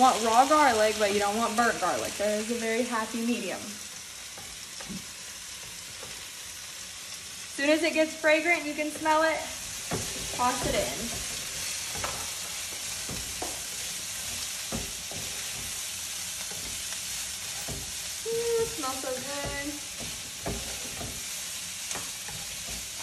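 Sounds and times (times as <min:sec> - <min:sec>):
vegetables sizzling in oil: 0:00.0 - 0:23.0
spatula scraping and knocking wok: 0:03.9 - 0:07.5, 0:08.7 - 0:23.0.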